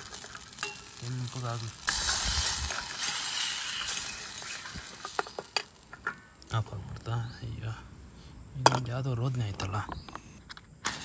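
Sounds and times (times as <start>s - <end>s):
tomato sizzling in hot oil: 0.0s - 6.0s.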